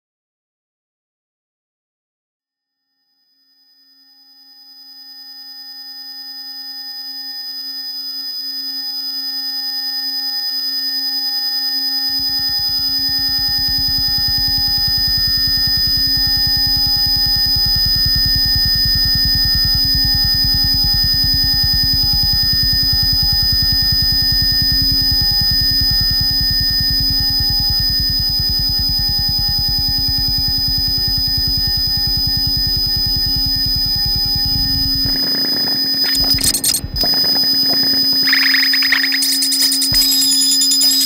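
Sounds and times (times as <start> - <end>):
low fast-pulsing buzz: 12.1 - 26.4, 28.8 - 41.0.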